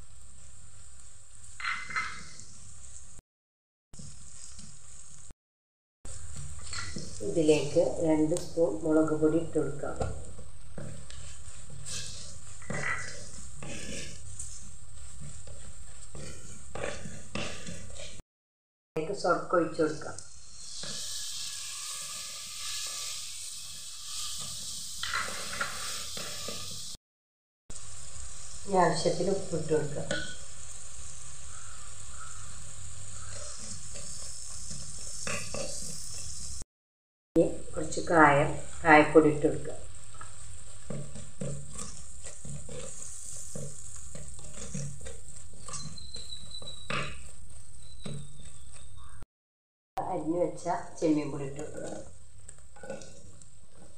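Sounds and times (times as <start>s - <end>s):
sizzling and hissing in hot oil: 0.0s - 3.2s, 4.0s - 5.3s, 6.1s - 18.2s, 20.2s - 27.0s, 27.7s - 36.7s, 37.6s - 48.2s
wooden spoon scraping a pot: 9.0s - 18.2s, 20.5s - 27.0s, 31.5s - 36.5s, 39.9s - 49.2s.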